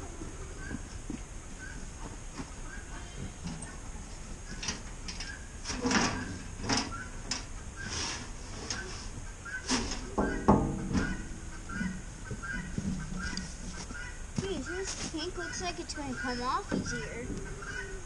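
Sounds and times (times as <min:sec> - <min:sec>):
sheet metal clunking and scraping: 0:04.5 - 0:15.7, 0:16.3 - 0:17.9
metal grating scrape: 0:07.8 - 0:15.6.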